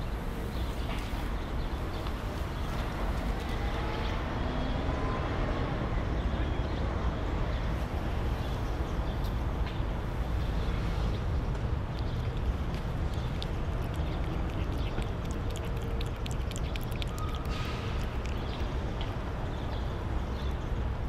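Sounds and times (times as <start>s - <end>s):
low outdoor rumble: 7.8s - 21.0s.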